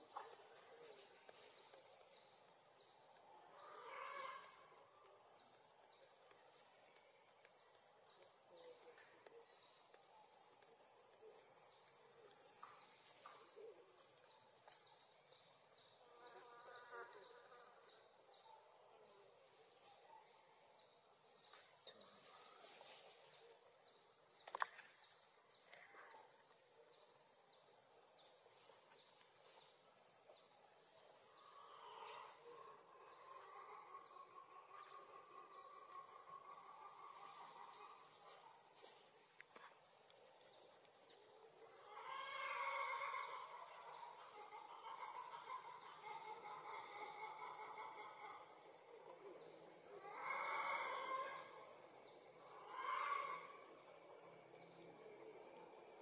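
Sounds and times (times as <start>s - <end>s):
insects chirping: 0.0s - 56.0s
insect buzzing: 15.3s - 18.1s.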